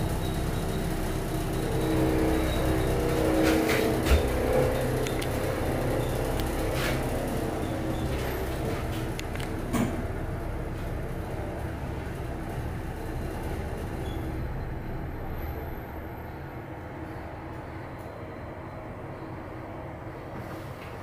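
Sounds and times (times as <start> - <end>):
elevator rumble and hum: 0.0 - 21.0.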